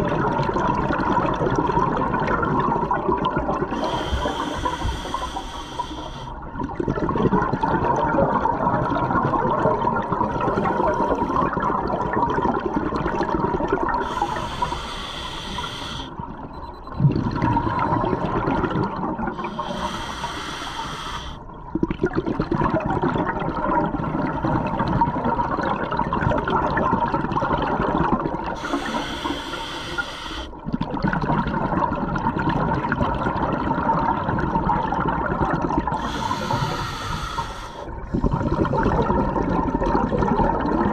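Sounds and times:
bubbling exhalations underwater: 0.0 - 4.8, 6.5 - 16.0, 16.9 - 20.0, 21.6 - 29.4, 30.6 - 40.9
regulator hissing inhalation: 3.8 - 6.4, 10.5 - 11.4, 14.0 - 16.2, 19.4 - 21.4, 28.6 - 30.5, 36.0 - 37.9.

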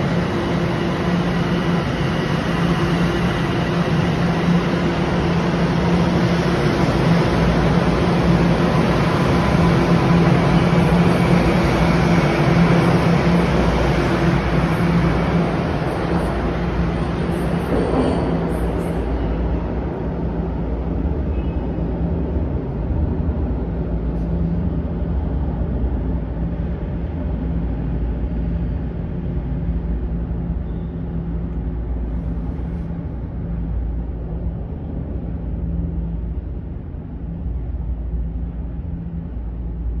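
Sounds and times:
subway trains rumbling: 0.0 - 40.0.

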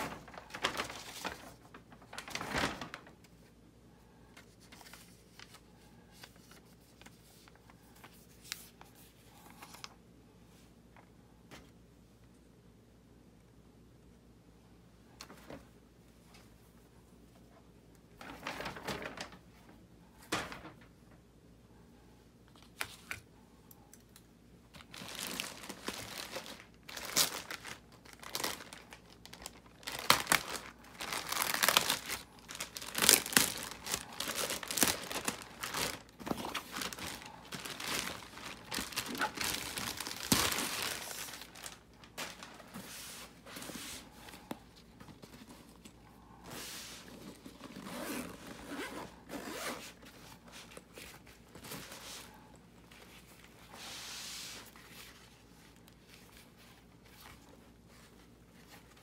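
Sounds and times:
plastic bag crinkling: 0.0 - 3.2, 24.8 - 42.8.

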